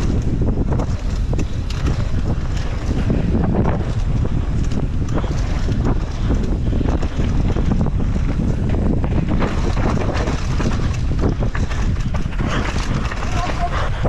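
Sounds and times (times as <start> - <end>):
bike rattling and knocking: 0.0 - 14.0
tyres rumbling on dirt: 0.0 - 14.0
wind buffeting microphone: 0.0 - 14.0.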